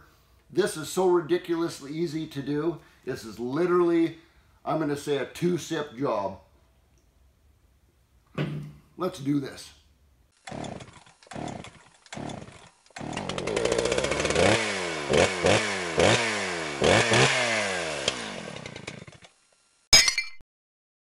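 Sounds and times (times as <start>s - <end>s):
small engine revving: 10.4s - 19.7s.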